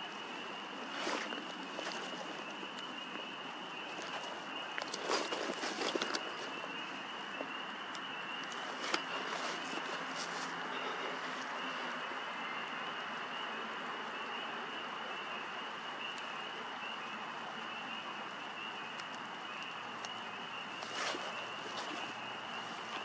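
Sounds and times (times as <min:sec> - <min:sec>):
continuous high-pitched tone: 0:00.0 - 0:23.0
brief rustle: 0:03.9 - 0:06.7, 0:20.8 - 0:23.0.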